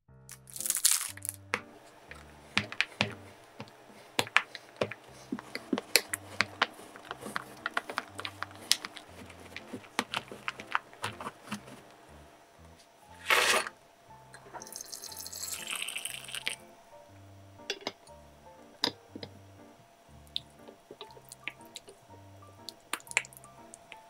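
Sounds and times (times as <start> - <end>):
chocolate pieces rattling into bowl: 0.3 - 1.6
knife chopping chocolate on board: 1.6 - 11.8.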